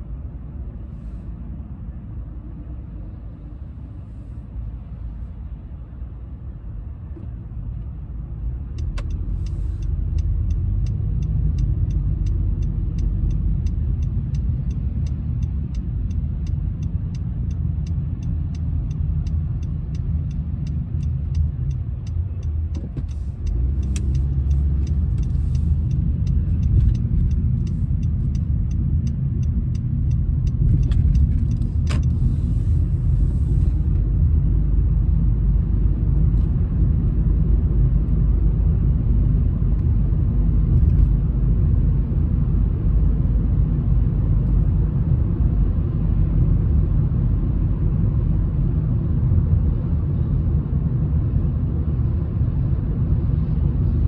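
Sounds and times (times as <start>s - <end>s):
car cabin road rumble: 0.0s - 54.0s
turn signal ticking: 8.6s - 34.0s.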